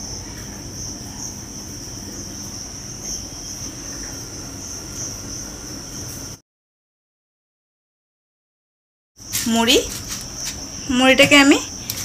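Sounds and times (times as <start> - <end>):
crickets trilling: 0.0 - 6.4, 9.2 - 12.0.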